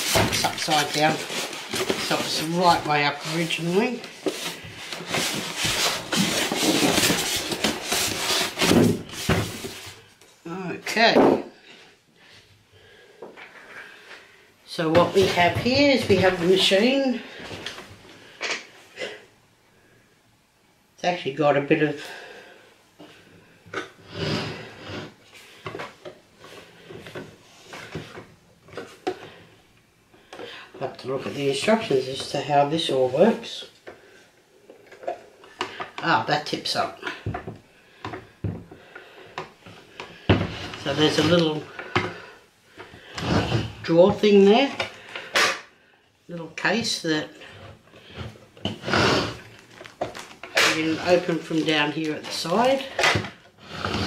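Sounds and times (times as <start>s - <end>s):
plastic rubbing: 0.0s - 10.1s, 47.4s - 54.0s
plastic scraping against foam: 0.0s - 10.1s, 43.0s - 45.2s, 47.4s - 54.0s.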